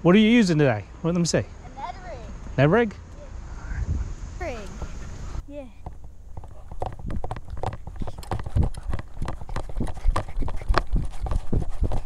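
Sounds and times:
footsteps on asphalt: 4.6s - 12.0s.

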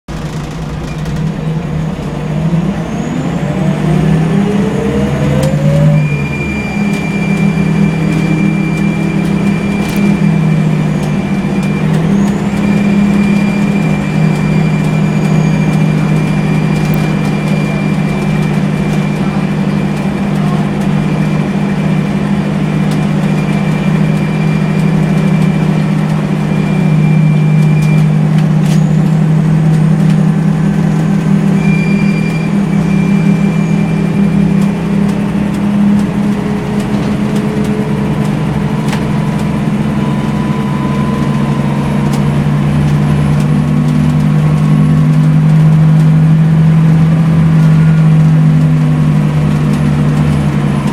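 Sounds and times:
bus engine: 0.0s - 50.9s.

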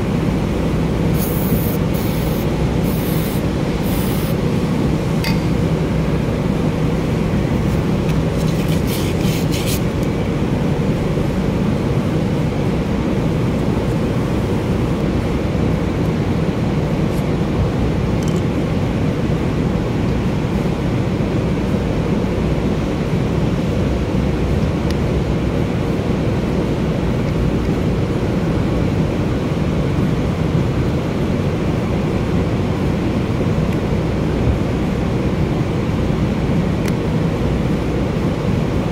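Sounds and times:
steady low rumbling: 0.0s - 8.4s
aerosol spray hiss: 1.1s - 4.4s.

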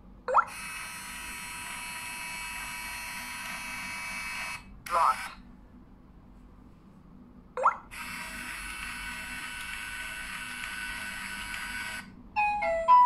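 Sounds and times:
door lock motor running: 0.5s - 4.6s, 8.0s - 12.1s.

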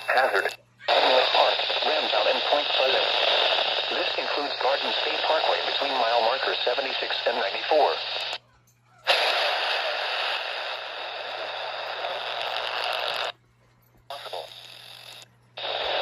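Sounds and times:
radio static hiss: 0.0s - 8.4s, 9.1s - 13.4s, 14.1s - 16.0s.

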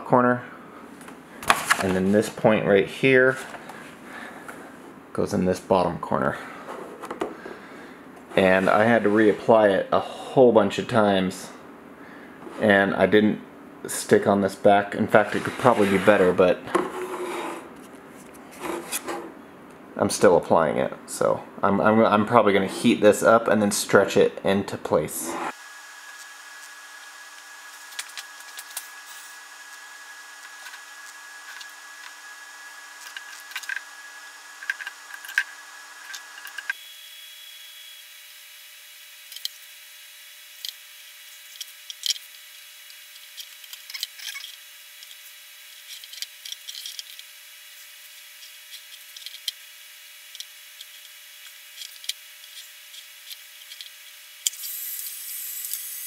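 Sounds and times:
faint steady hum: 0.0s - 55.9s
heat gun rushing hiss: 54.4s - 56.0s.

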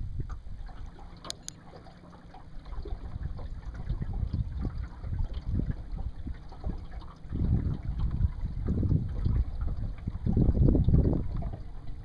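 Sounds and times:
water lapping against boat: 0.0s - 12.0s.

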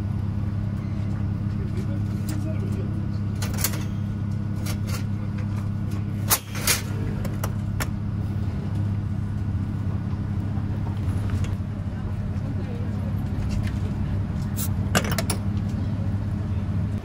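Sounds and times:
steady low hum: 0.0s - 17.0s
vending machine clicks and clacks: 3.4s - 5.1s, 6.2s - 7.9s.

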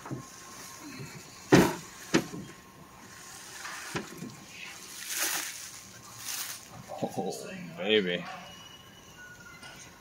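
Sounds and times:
plastic wrap crinkling: 4.8s - 6.8s.

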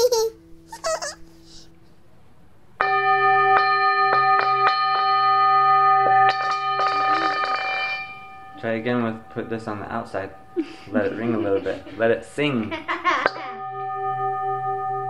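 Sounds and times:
singing bowl struck and ringing: 2.8s - 10.6s, 13.3s - 15.0s.

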